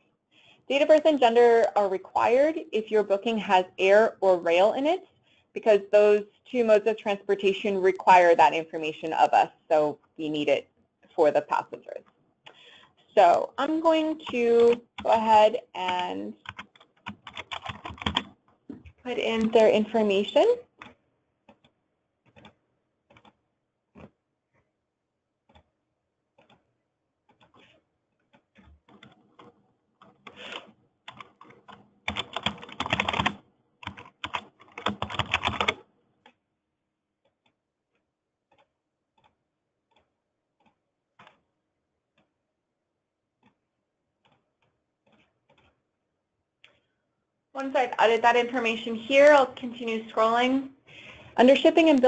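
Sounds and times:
typing on computer keyboard: 0:14.1 - 0:19.6, 0:20.8 - 0:23.4, 0:27.3 - 0:36.4.

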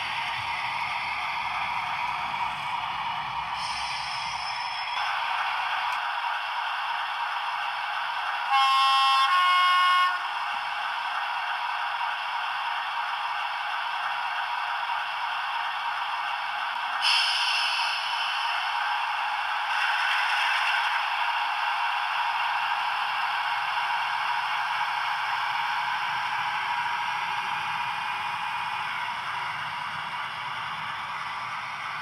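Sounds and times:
model locomotive engine hum: 0:00.0 - 0:32.0
two-tone horn: 0:08.5 - 0:10.2.

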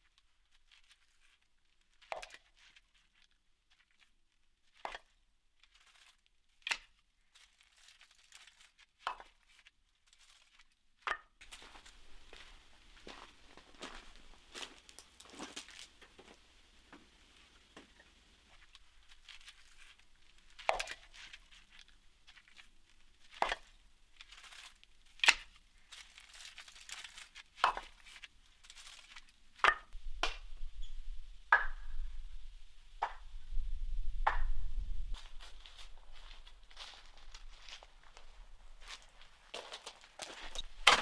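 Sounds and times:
wood rustling and scraping: 0:17.0 - 0:29.8, 0:35.1 - 0:41.0.

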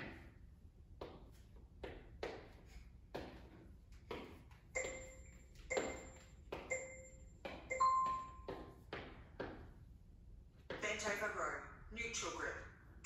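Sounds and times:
timer long beep: 0:04.8 - 0:08.5
timer short beeps: 0:04.8 - 0:08.5.

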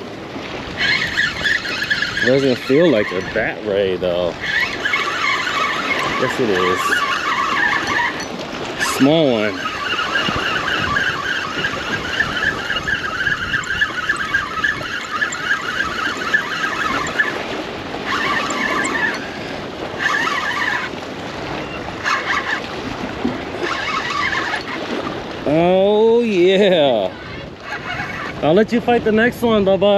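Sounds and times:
fishing reel clicking: 0:00.8 - 0:17.4, 0:18.0 - 0:21.0, 0:22.0 - 0:22.6, 0:23.6 - 0:24.8.

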